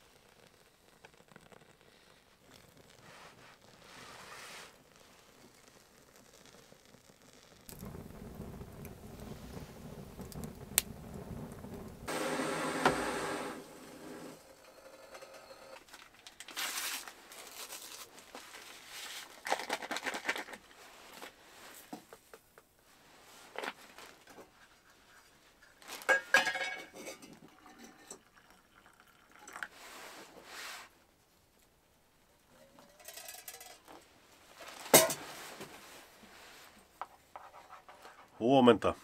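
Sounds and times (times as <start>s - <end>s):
food pouring: 4.8s - 14.5s, 25.8s - 30.2s
rustling: 15.7s - 22.0s
metal pot and cup clinking: 26.1s - 29.6s, 32.6s - 33.9s.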